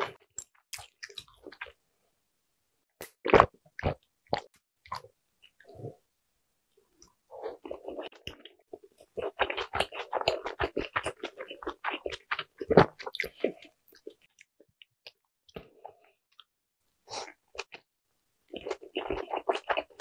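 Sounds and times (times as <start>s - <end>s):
wet chewing clicks and smacks: 7.6s - 15.6s.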